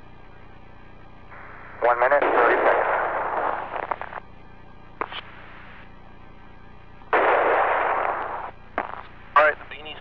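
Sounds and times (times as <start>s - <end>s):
burst of static: 1.3s - 4.2s, 5.0s - 5.9s, 7.2s - 10.0s
radio intercom hiss: 1.3s - 4.2s, 5.0s - 6.0s, 8.4s - 10.0s.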